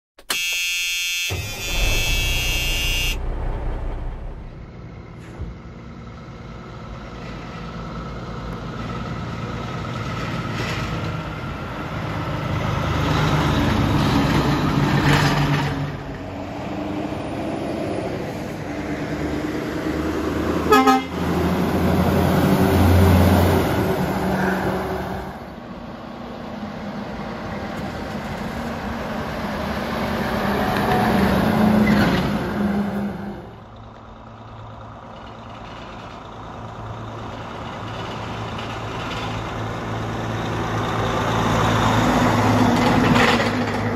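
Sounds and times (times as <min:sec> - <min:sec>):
short sharp loud sound: 0:00.3 - 0:05.7
pitched intro sound: 0:01.2 - 0:05.2
trucks driving past: 0:01.3 - 0:43.9.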